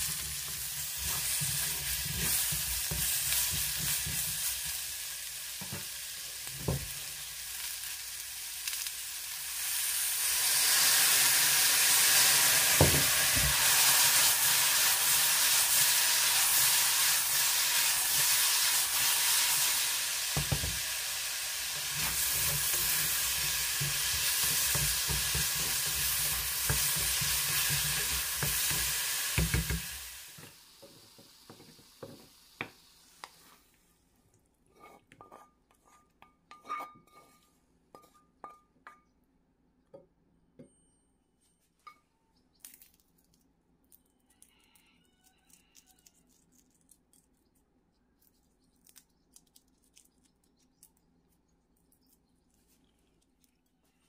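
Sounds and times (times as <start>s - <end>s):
vegetables sizzling in oil: 0.0s - 33.7s
spatula clinking and scraping pan: 21.8s - 30.0s, 34.7s - 39.0s.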